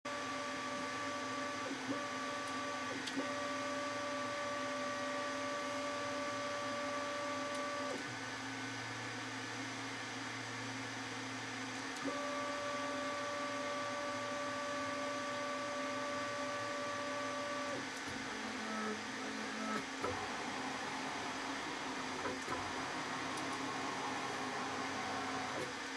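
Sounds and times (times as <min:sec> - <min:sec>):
stepper motor whine: 0:12.0 - 0:25.8.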